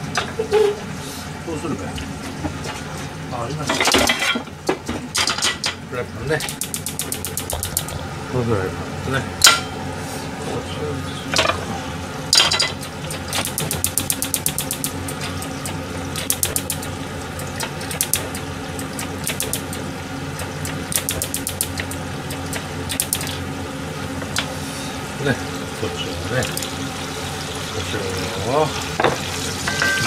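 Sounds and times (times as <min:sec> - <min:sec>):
chicken sizzling in oil: 0:23.8 - 0:30.0.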